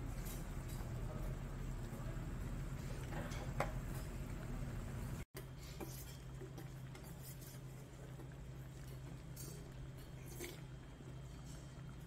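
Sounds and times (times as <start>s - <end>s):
steady low hum: 0.0s - 12.0s
stew bubbling in a pot: 0.0s - 12.0s
dishes and cutlery clinking: 3.0s - 4.2s, 8.7s - 11.7s.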